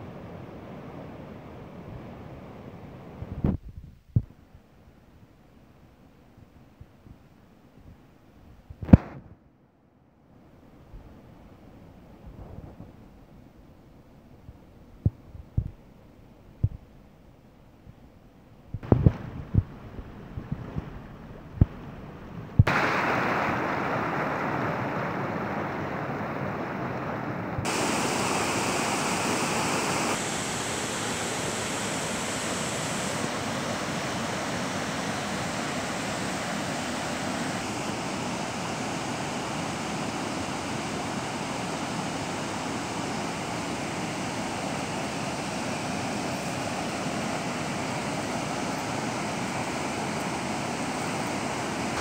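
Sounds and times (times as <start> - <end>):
rushing stream water: 18.8 - 52.0.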